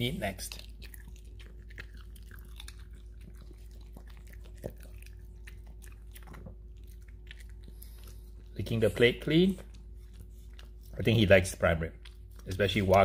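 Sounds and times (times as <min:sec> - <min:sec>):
dog chewing and smacking: 0:00.0 - 0:13.0.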